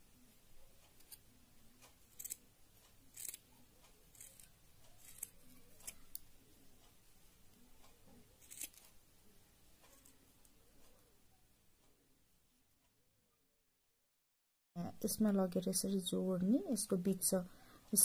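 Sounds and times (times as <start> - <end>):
scissors snipping yarn: 0.9 - 1.3, 1.9 - 2.4, 3.0 - 6.3, 7.5 - 9.0, 9.9 - 10.6.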